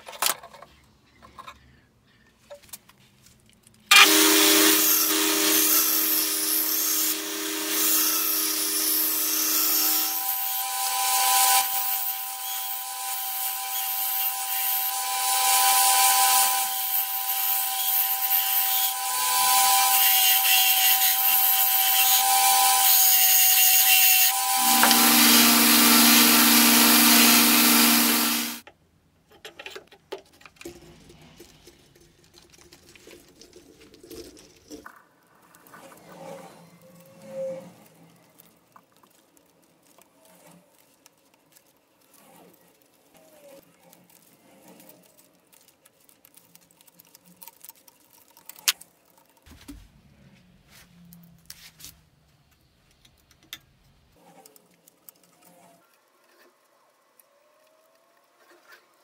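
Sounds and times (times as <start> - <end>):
power tool motor whining: 3.9 - 28.6.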